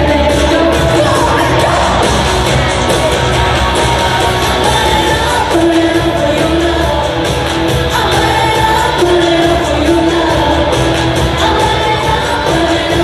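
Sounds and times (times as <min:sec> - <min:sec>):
crowd yelling and cheering: 0:00.0 - 0:13.0
live pop-rock band: 0:00.0 - 0:13.0
woman singing: 0:00.0 - 0:13.0.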